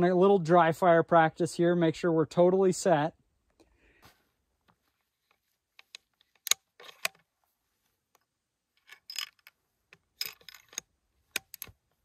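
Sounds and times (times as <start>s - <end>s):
rifle bolt clicks and rattles: 5.3s - 7.3s, 8.1s - 11.8s.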